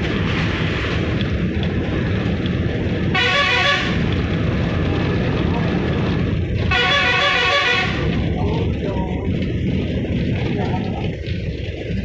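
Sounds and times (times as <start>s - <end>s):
bus engine and road noise: 0.0s - 12.0s
vehicle horn: 3.1s - 4.1s, 6.6s - 8.2s.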